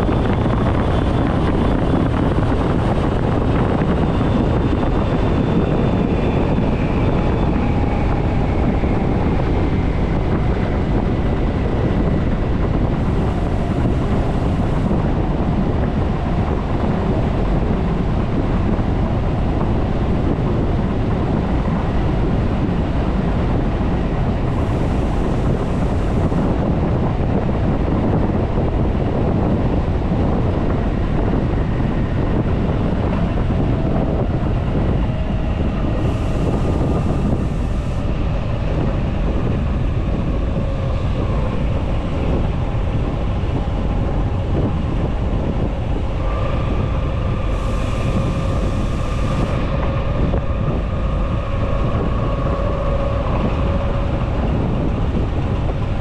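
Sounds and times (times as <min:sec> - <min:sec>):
train wheels rumbling on rail: 0:00.0 - 0:56.0
wind noise on microphone: 0:00.0 - 0:56.0
faint whining tones: 0:29.7 - 0:56.0.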